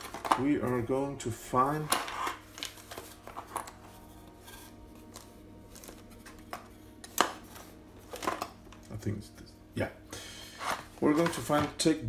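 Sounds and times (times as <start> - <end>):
plastic chips clattering: 0.0 - 0.6.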